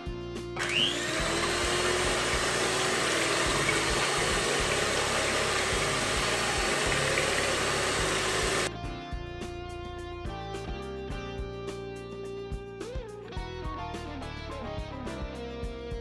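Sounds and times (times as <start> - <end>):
electric hand mixer whirring: 0.6 - 8.7.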